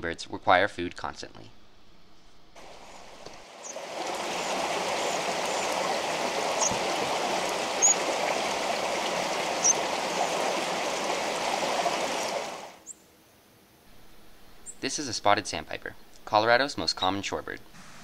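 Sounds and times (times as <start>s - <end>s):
creek water rushing: 2.6s - 12.8s.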